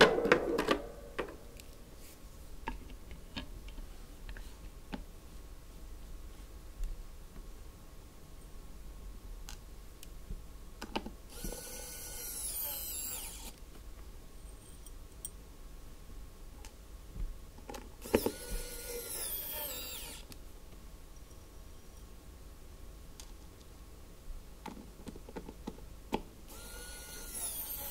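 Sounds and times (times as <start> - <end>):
electric screwdriver whining: 11.3 - 13.6, 18.0 - 20.3, 26.5 - 27.9.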